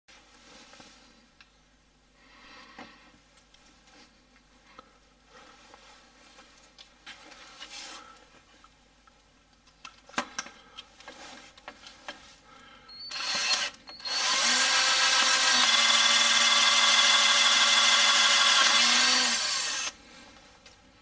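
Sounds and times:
cordless drill running: 12.9 - 20.0.

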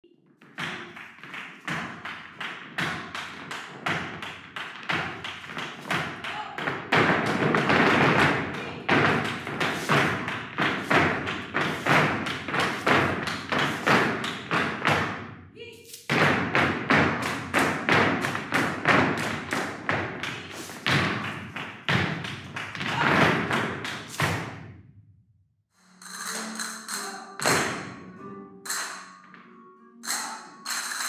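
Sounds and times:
flamenco percussion strikes: 26.0 - 28.0, 30.0 - 31.0.

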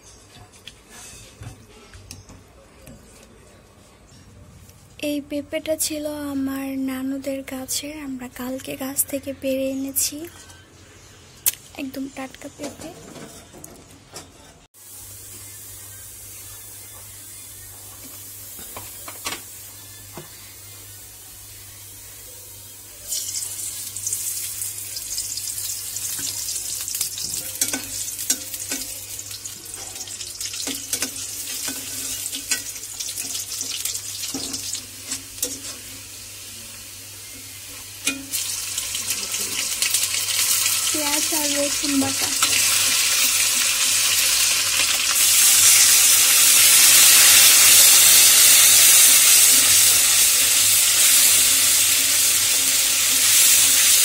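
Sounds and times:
garlic and onion sizzling in oil: 14.8 - 54.0.

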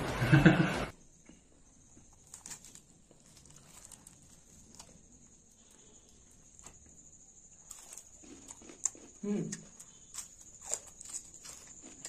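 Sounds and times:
fried fish skin crackling: 2.1 - 7.0, 9.8 - 12.0.

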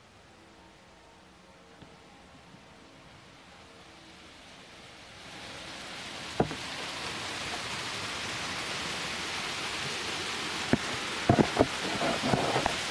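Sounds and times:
waterfall rushing: 3.6 - 12.9.

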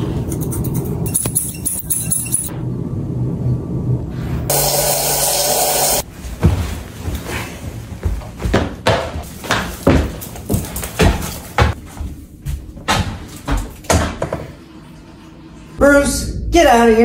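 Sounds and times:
irregular knocks and bumps: 8.0 - 11.8.

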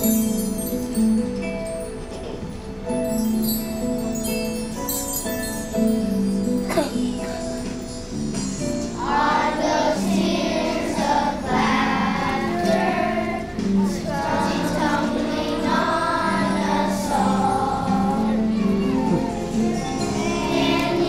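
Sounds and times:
children's choir singing: 8.7 - 21.0.

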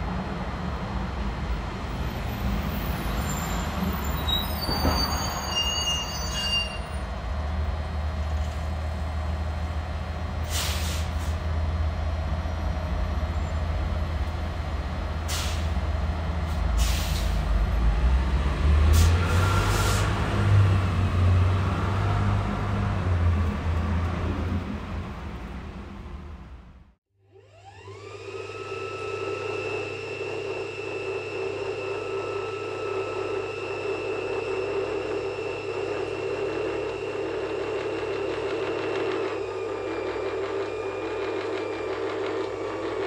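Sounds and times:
high squeaks: 2.8 - 7.0
passing vehicles rumbling: 7.0 - 27.0.

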